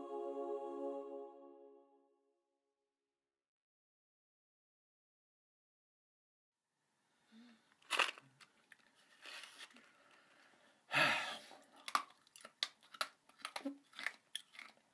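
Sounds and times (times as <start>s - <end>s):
man chewing something crunchy: 11.7s - 14.9s.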